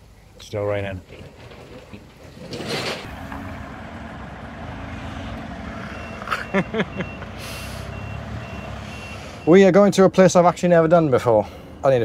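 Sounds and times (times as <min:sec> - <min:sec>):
reversing beeper: 0:03.1 - 0:09.7
diesel engine idling: 0:03.1 - 0:10.2.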